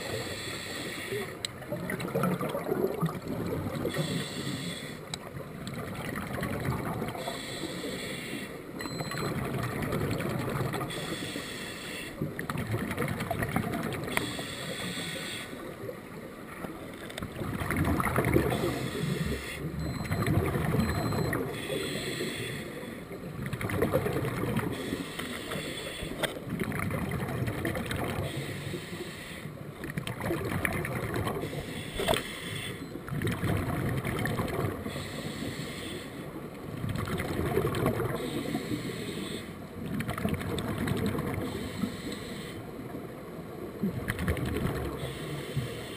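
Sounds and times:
regulator inhale hiss: 0.0s - 1.3s, 3.9s - 5.1s, 7.2s - 8.6s, 10.9s - 12.2s, 14.1s - 15.7s, 18.6s - 19.7s, 21.6s - 23.1s, 24.7s - 26.2s, 28.2s - 29.6s, 31.4s - 32.8s, 34.9s - 36.3s, 38.2s - 39.6s, 41.5s - 42.7s, 45.0s - 45.9s
exhaled bubbles gurgling: 1.1s - 4.2s, 5.2s - 7.4s, 9.0s - 11.0s, 12.2s - 14.2s, 15.6s - 21.8s, 23.2s - 25.0s, 26.4s - 28.4s, 29.8s - 31.6s, 33.0s - 35.3s, 36.7s - 38.8s, 39.8s - 41.8s, 43.7s - 45.1s.

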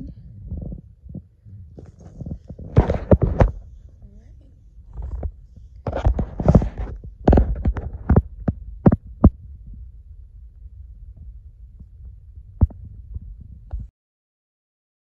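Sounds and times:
low steady rumble: 0.0s - 13.9s
knocks and rustles of handling: 0.5s - 4.0s, 4.8s - 9.9s.

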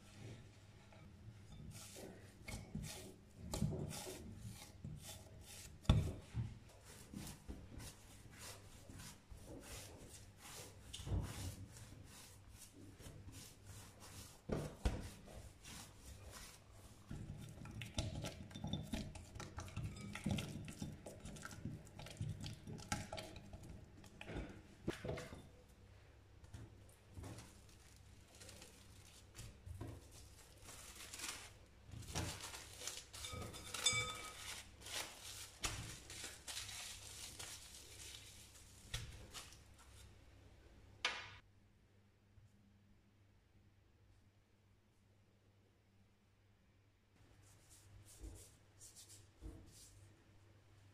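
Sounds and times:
dough kneaded by hand: 0.0s - 41.4s, 47.2s - 50.9s
dough thumping: 14.4s - 25.5s.

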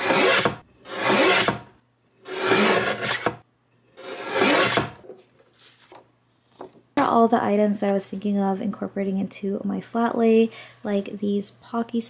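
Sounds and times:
paper trimmer cutting paper: 0.0s - 1.6s, 2.3s - 3.4s, 4.0s - 5.0s.

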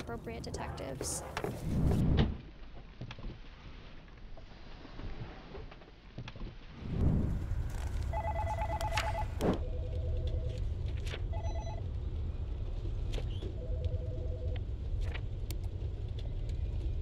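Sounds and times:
low steady rumble: 6.7s - 17.0s
electronic telephone ringing: 8.1s - 10.2s, 11.3s - 11.8s.

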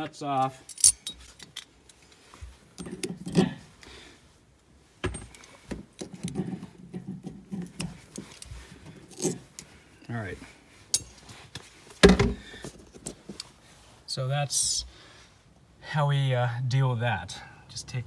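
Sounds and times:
rustling handling noise: 0.3s - 14.1s
metal parts clinking and scraping: 0.5s - 3.6s, 7.6s - 9.7s, 10.9s - 11.6s.

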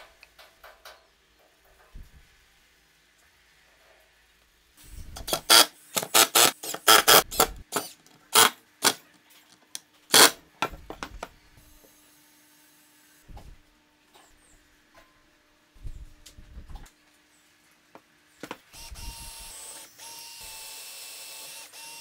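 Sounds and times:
cordless driver driving screws: 5.2s - 9.0s, 10.1s - 10.4s.

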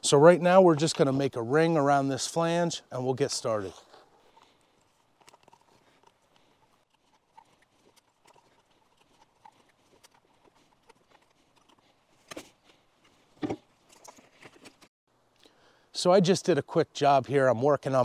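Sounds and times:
tape handling ticks and rustles: 3.2s - 14.9s.

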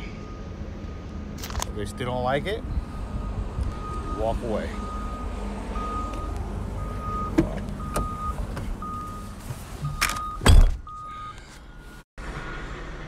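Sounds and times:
truck door slamming: 9.9s - 10.9s.

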